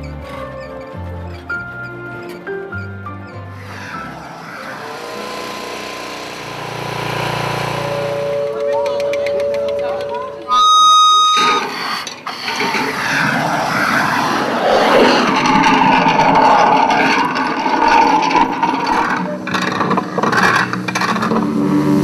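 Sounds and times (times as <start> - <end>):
tools scraping on asphalt: 3.3 - 10.0, 11.4 - 22.0
disc rolling over asphalt: 3.5 - 10.5, 11.4 - 22.0.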